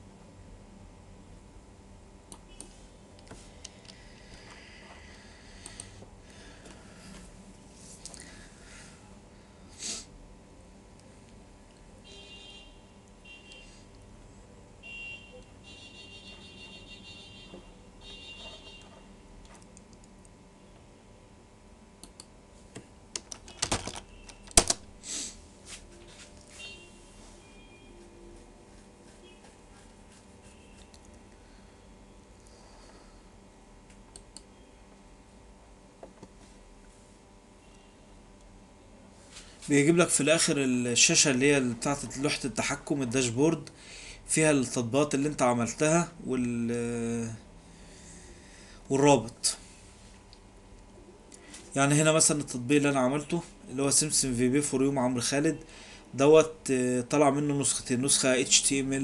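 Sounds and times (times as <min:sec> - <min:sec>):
faint steady hum: 0:00.0 - 0:59.0
computer keyboard typing: 0:23.1 - 0:24.8.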